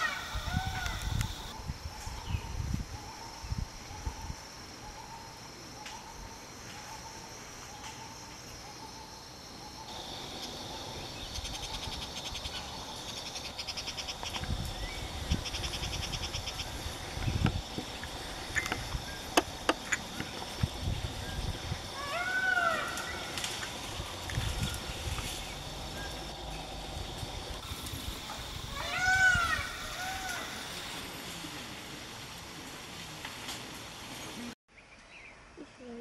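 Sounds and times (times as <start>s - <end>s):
rapid pulsing insect trills: 0.0s - 33.1s
high-pitched insect drone: 8.8s - 31.2s.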